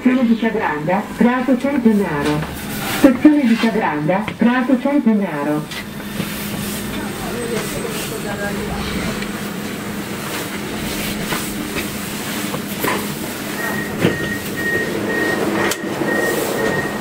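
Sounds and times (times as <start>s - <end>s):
train electrical hum: 0.0s - 17.0s
high beep: 13.5s - 17.0s.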